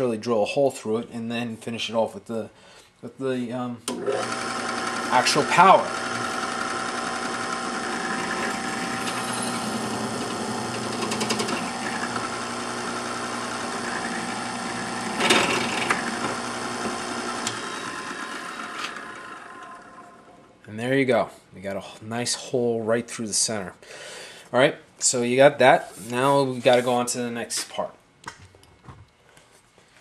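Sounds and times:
drill press motor running: 0:03.9 - 0:20.4
loud grinding scrape: 0:04.0 - 0:20.1
drill bit scraping metal: 0:04.1 - 0:19.6.

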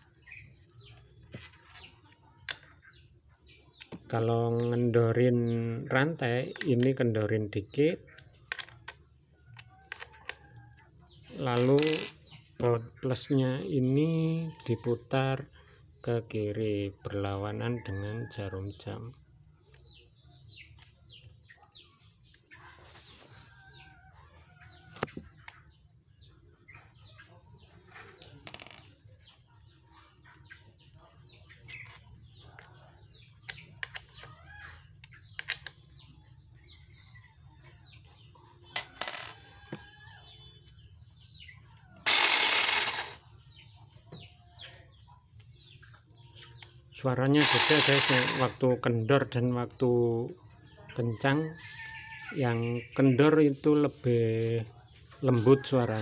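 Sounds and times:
birds chirping: 0:00.0 - 0:56.0
metallic clicks and clinks: 0:11.6 - 0:12.2
electric chainsaw running: 0:42.0 - 0:43.2, 0:47.4 - 0:48.6.

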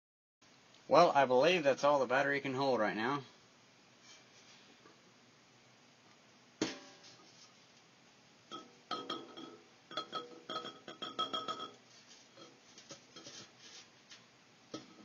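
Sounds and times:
glass ringing: 0:08.5 - 0:11.8.

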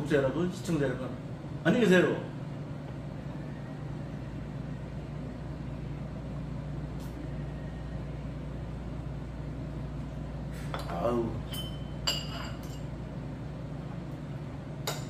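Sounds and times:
low room hum: 0:00.0 - 0:15.0
bowl clinking on table: 0:10.8 - 0:12.9.

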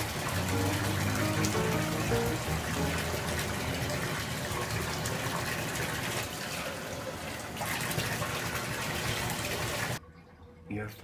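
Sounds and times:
water pouring into bathtub: 0:00.0 - 0:10.0.

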